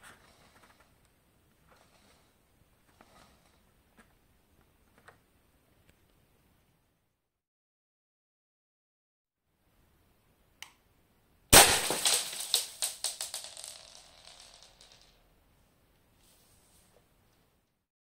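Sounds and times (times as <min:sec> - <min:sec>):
pieces clattering on wooden floor: 0:11.6 - 0:15.2.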